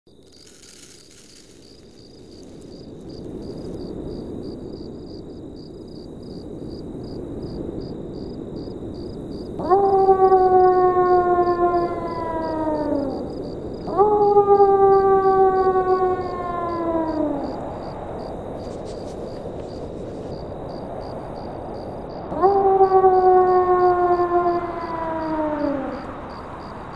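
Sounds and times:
wolf howling: 0:09.6 - 0:18.1, 0:22.3 - 0:26.4.

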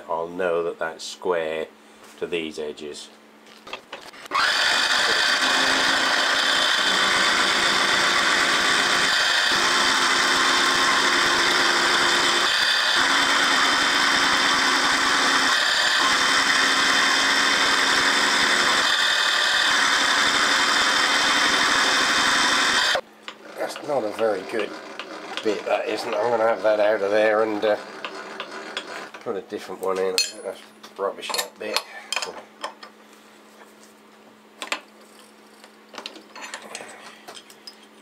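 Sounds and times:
milling machine cutting metal: 0:04.3 - 0:29.2.

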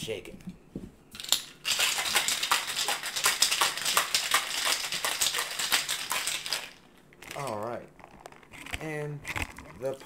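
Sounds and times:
ice rattling in cocktail shaker: 0:01.2 - 0:07.6.

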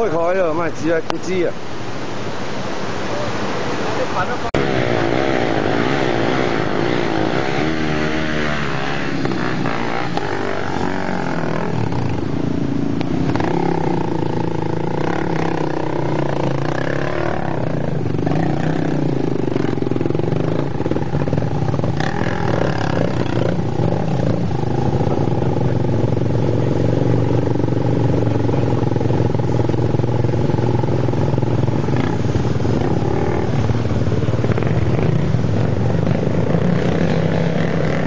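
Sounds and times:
dirt bike engines revving: 0:00.0 - 0:38.0.

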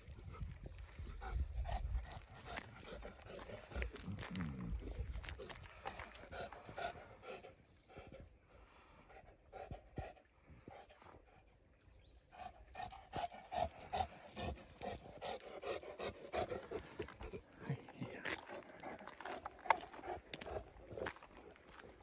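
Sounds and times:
dog panting: 0:00.0 - 0:04.4, 0:05.1 - 0:11.6, 0:12.3 - 0:22.0
footsteps on gravel: 0:02.3 - 0:06.8, 0:16.7 - 0:22.0.

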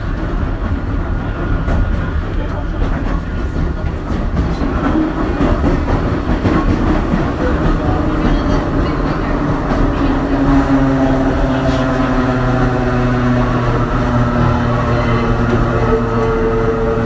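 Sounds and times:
railcar equipment low rumble: 0:00.0 - 0:17.0.

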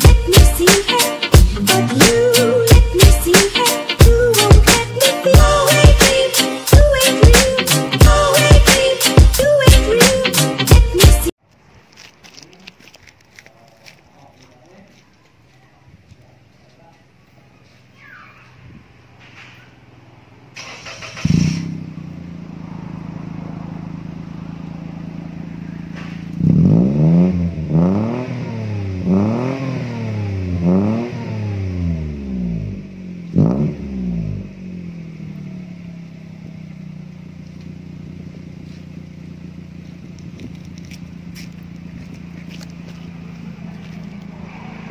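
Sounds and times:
car engine idling and revving: 0:18.8 - 0:44.9.

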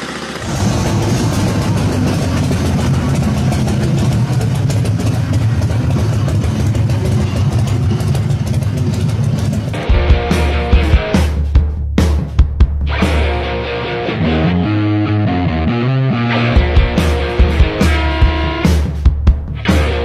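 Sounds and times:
motorcycle engine running: 0:00.0 - 0:14.4, 0:16.4 - 0:20.0
rock music with drums and guitar: 0:08.6 - 0:20.0.

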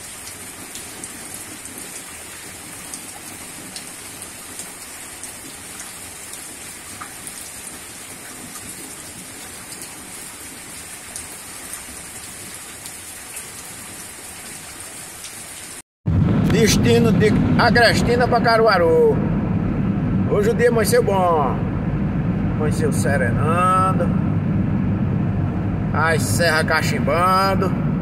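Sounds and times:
raindrops ticking on surfaces: 0:00.0 - 0:15.8
steady rain hiss: 0:00.0 - 0:15.8.

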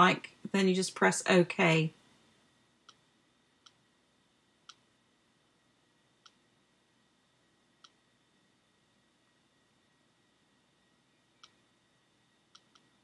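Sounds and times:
computer mouse clicks: 0:04.6 - 0:04.9, 0:07.8 - 0:08.0, 0:12.5 - 0:13.0.

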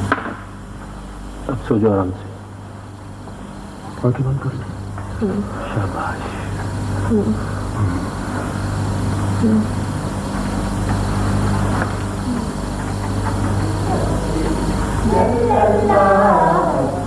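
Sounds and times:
low electrical hum: 0:00.0 - 0:17.0
even hiss: 0:03.0 - 0:17.0.

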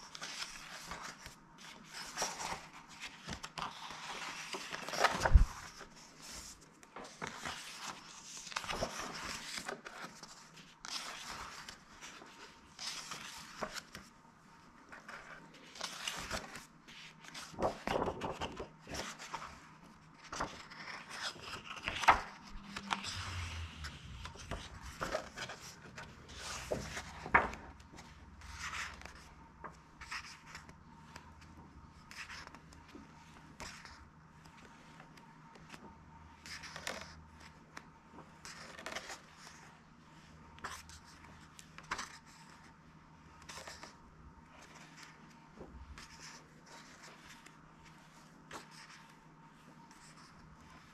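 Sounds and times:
pages being turned: 0:00.0 - 0:14.1, 0:14.9 - 0:35.8, 0:36.4 - 0:39.7.

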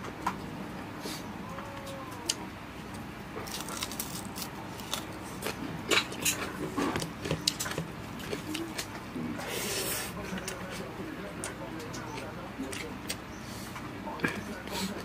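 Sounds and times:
mouth chewing: 0:03.4 - 0:09.0, 0:09.6 - 0:15.0.

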